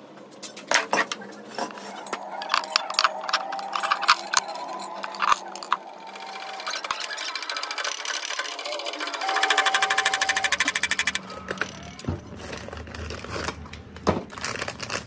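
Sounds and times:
steel parts clinking and knocking: 0.7s - 12.7s.

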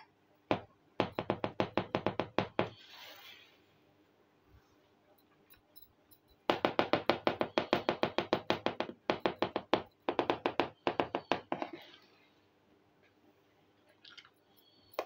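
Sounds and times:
tapping on clay pot: 6.4s - 11.8s.

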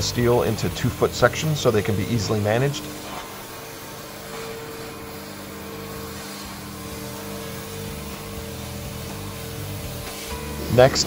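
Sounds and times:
cutting torch hissing: 0.0s - 11.0s.

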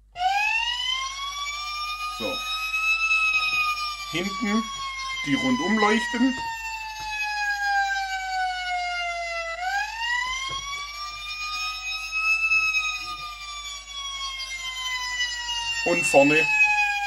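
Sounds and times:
electronic wail siren: 0.0s - 17.0s.

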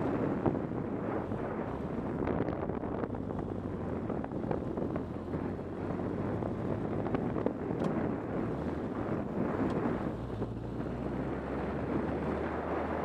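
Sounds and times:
motorcycle engine hum: 0.0s - 13.0s
wind rushing over microphone: 0.0s - 13.0s.

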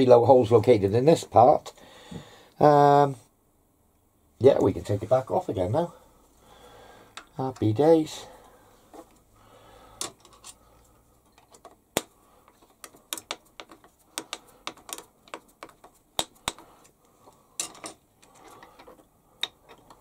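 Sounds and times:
metal parts clicking and knocking: 11.2s - 16.6s, 17.6s - 20.0s.

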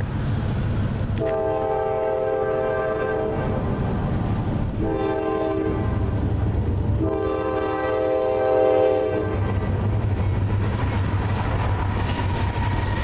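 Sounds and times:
train rumble: 0.0s - 13.0s
locomotive air horn: 1.2s - 3.6s, 4.8s - 6.1s, 7.0s - 9.4s.

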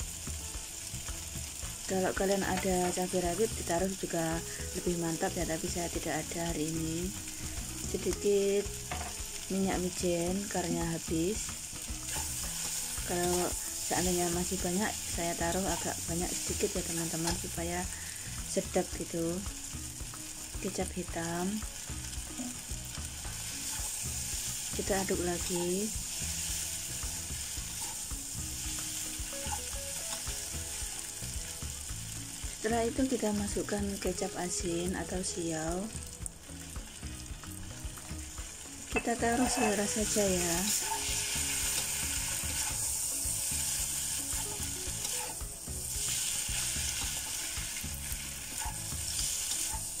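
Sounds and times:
vegetables sizzling in a wok: 0.0s - 50.0s
metal spatula scraping a pan: 12.1s - 13.9s, 23.4s - 24.6s, 25.4s - 28.1s, 28.7s - 30.3s, 39.0s - 39.9s, 40.7s - 45.4s.

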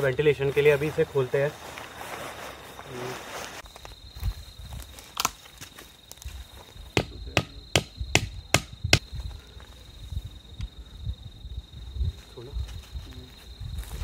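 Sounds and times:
cricket trill: 0.0s - 14.0s
hammer striking nail into wood: 7.0s - 8.8s.

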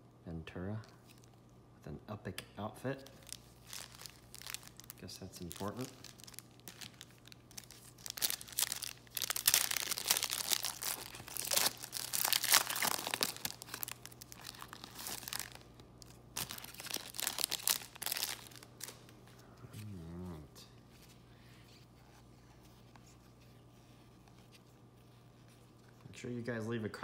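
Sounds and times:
foil pack tearing and crinkling: 3.2s - 19.0s.

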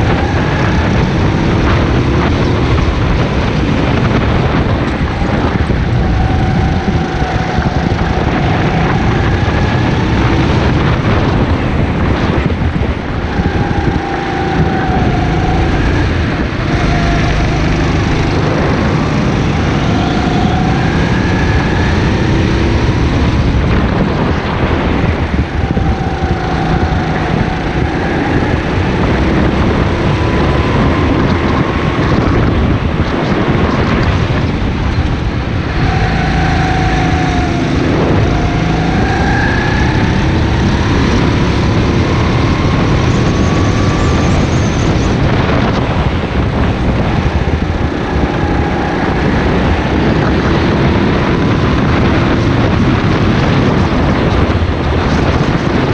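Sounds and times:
go-kart engine revving: 0.0s - 55.9s.

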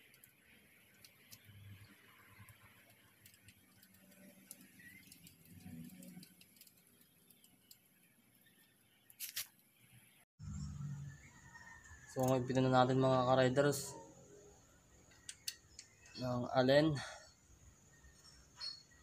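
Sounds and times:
light rubbing handling noises: 9.1s - 9.6s.

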